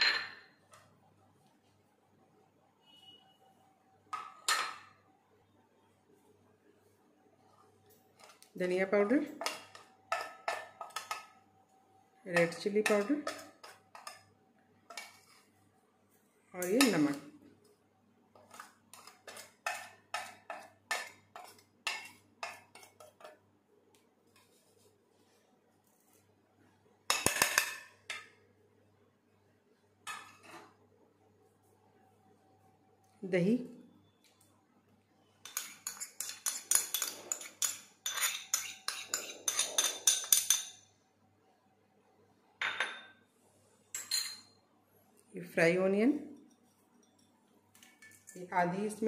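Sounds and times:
scraping spices into steel bowl: 18.4s - 23.4s, 35.5s - 40.6s
spoon clinking in ceramic bowl: 35.5s - 40.9s, 44.0s - 44.6s.

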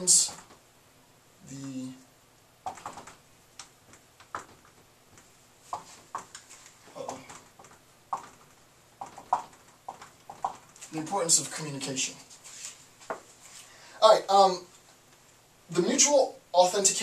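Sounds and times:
marker squeaking on whiteboard: 5.7s - 10.9s.

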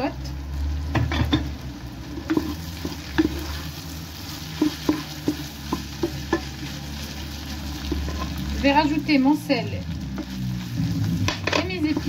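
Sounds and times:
light sizzle of frying: 0.0s - 12.0s
wooden spoon scraping pot: 2.1s - 6.9s, 7.5s - 8.6s.

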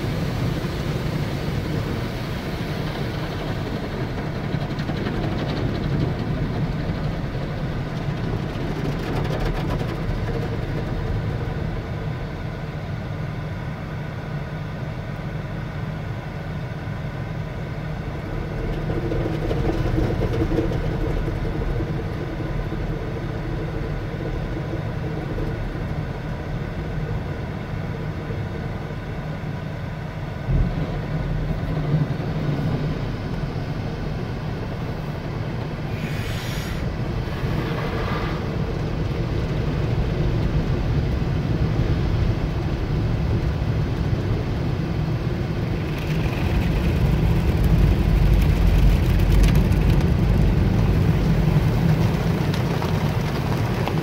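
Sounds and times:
car wash water rushing: 0.0s - 13.6s, 16.8s - 54.0s
car wash machinery hum: 0.0s - 54.0s.

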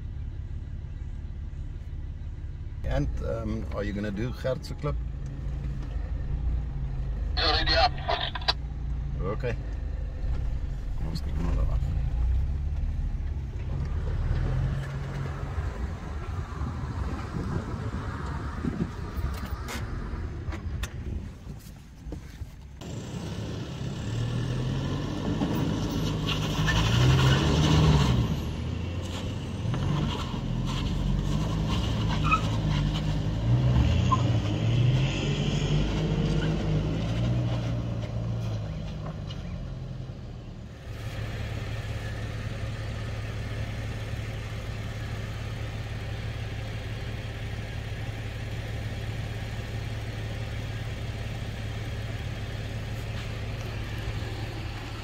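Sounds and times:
vehicle engine revving under load: 22.8s - 46.4s.

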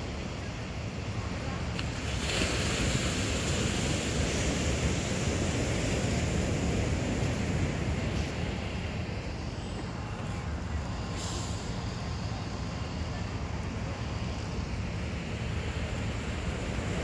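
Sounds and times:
ocean surf breaking: 0.7s - 9.6s.

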